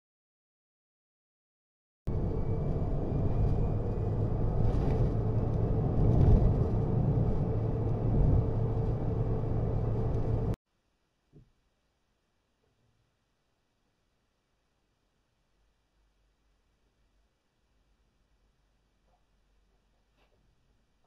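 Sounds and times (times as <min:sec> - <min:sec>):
road and tyre rumble in car: 0:02.1 - 0:10.6.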